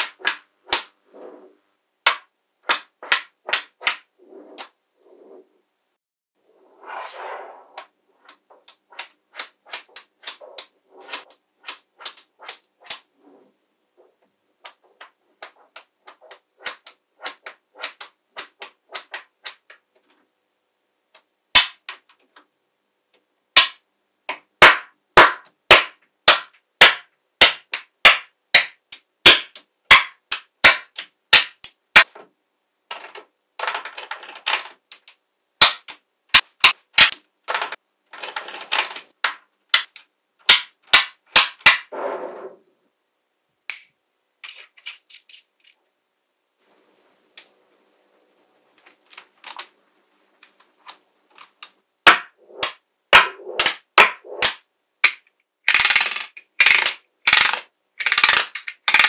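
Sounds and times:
magnetic balls clicking together: 2.0 - 4.8, 7.8 - 13.1, 14.6 - 20.1, 23.6 - 32.1, 32.9 - 41.9, 50.4 - 59.0
magnetic balls rattling: 7.7 - 13.1, 36.4 - 40.0.

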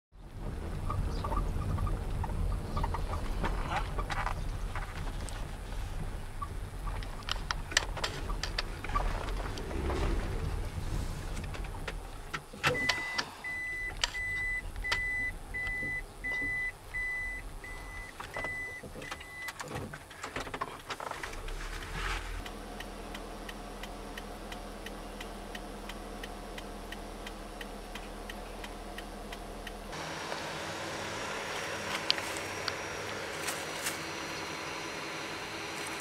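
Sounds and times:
car engine running: 0.2 - 36.0
clunks: 0.3 - 22.4
car warning chime beeping: 12.7 - 19.6
regular ticking: 22.4 - 30.0.

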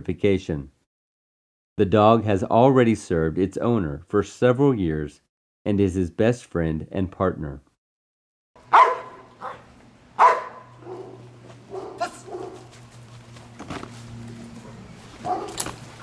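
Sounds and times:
dog barking and yelping: 8.6 - 12.8, 14.6 - 15.8
low hum: 8.6 - 16.0.

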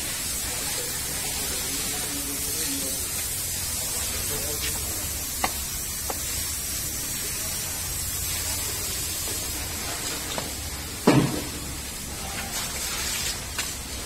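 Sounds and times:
sharp knock: 11.0 - 11.6.

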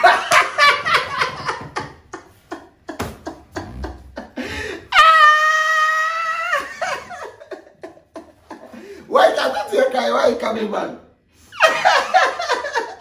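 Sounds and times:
person laughing: 0.0 - 4.9.

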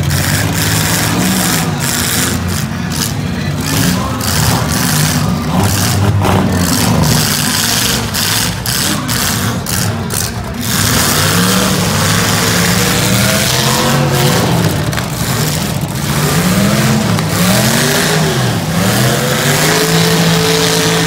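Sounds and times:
car engines revving: 0.0 - 21.0.

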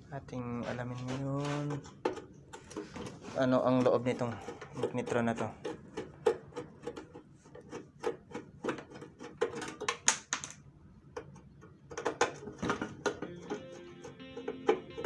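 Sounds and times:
guitar music: 13.1 - 15.0.

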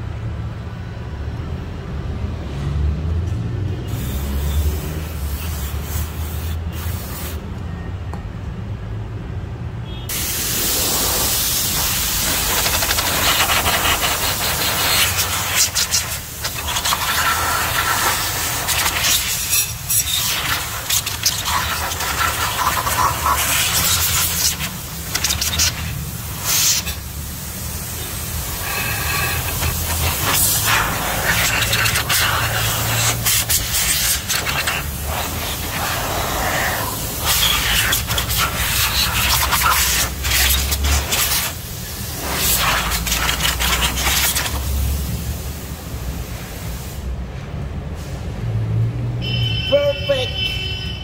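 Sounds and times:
hose spraying with hiss: 3.9 - 7.4, 10.1 - 47.1.

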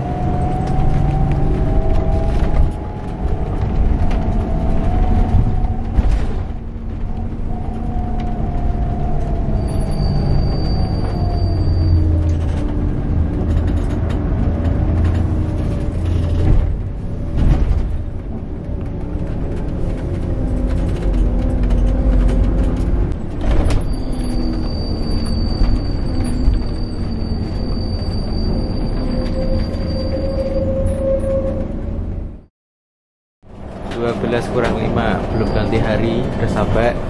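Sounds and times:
bus diesel engine running: 0.0 - 30.1, 33.5 - 37.0.

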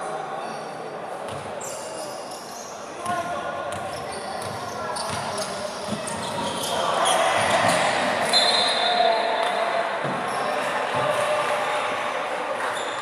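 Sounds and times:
spectators chattering: 0.0 - 13.0
high shoe squeak: 0.4 - 2.8, 3.8 - 9.0
basketball bouncing on court: 1.3 - 1.5, 3.0 - 6.6.

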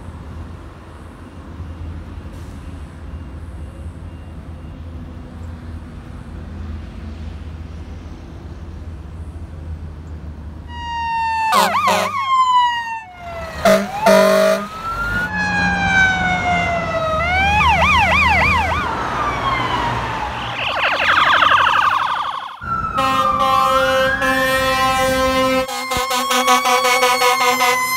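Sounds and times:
air horn blasts: 10.7 - 12.3, 13.5 - 14.8, 23.0 - 27.9
wailing sirens: 10.7 - 27.9
yelping siren: 10.7 - 27.9.

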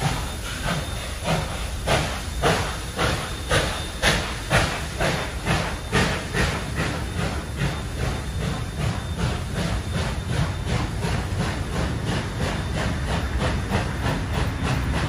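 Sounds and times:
steady hiss of steam: 0.0 - 15.0
steam locomotive chuffing: 0.0 - 15.0.

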